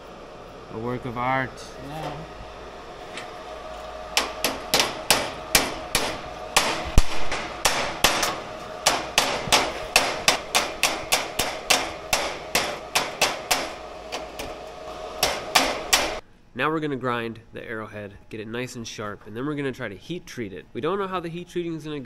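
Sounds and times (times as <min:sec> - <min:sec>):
hammer striking steel: 0:04.2 - 0:14.6, 0:15.2 - 0:16.2.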